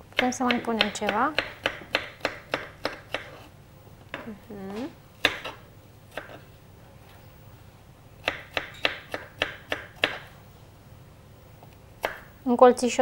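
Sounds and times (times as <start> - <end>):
knife chopping on wooden board: 0.2 - 3.5, 5.2 - 6.4, 8.2 - 10.3, 12.0 - 12.3.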